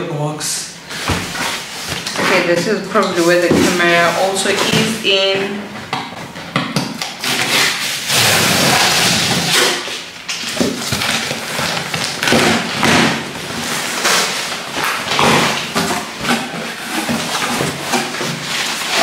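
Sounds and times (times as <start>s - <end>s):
cardboard scraping and rustling: 0.9s - 5.4s, 7.2s - 19.0s
packing tape tearing: 6.8s - 19.0s.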